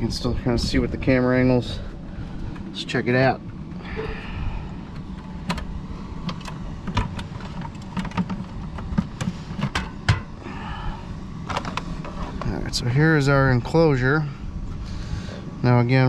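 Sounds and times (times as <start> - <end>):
steady low rumble: 0.0 - 16.0
equipment clicks and knocks: 5.0 - 10.3.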